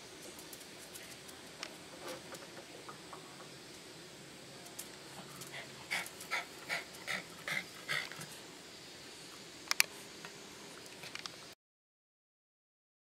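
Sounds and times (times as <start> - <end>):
dog panting: 5.3 - 8.3.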